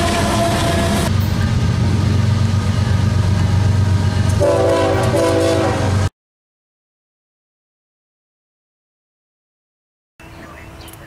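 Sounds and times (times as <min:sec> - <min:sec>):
locomotive engine and wheel rumble: 0:00.0 - 0:06.1, 0:10.2 - 0:11.0.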